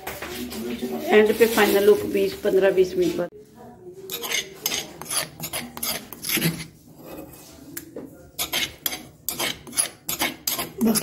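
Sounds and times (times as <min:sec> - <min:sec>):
metal spoon scraping mortar: 0:04.1 - 0:07.6, 0:08.3 - 0:11.0.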